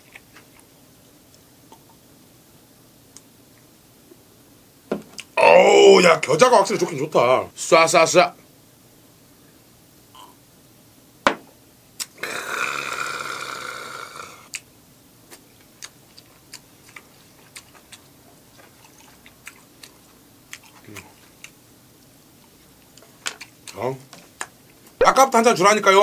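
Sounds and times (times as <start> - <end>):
chewing: 15.3 - 25.0.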